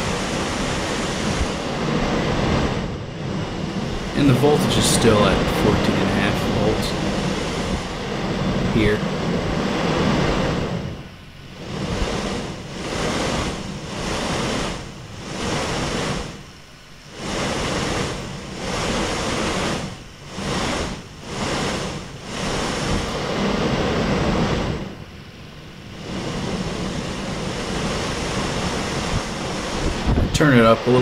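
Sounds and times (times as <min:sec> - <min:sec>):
fan airflow rushing: 0:00.0 - 0:31.0.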